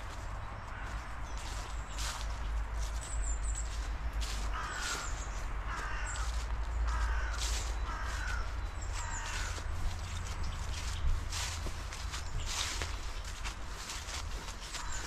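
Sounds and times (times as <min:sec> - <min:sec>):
bird calling: 0:04.3 - 0:15.0.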